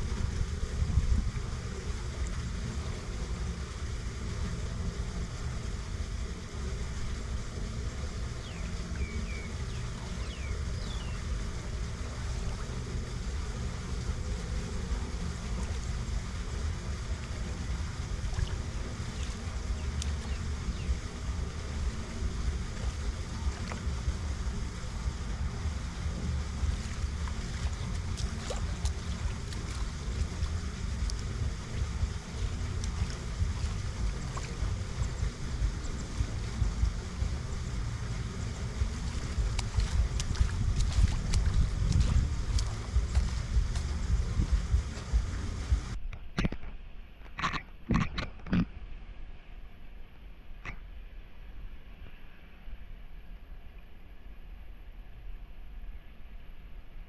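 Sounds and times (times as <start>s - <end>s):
water running off storm drain: 0.0s - 46.5s
wind rumble on microphone: 0.0s - 46.7s
footsteps splashing in water: 17.1s - 20.8s, 22.5s - 24.2s, 26.0s - 46.6s.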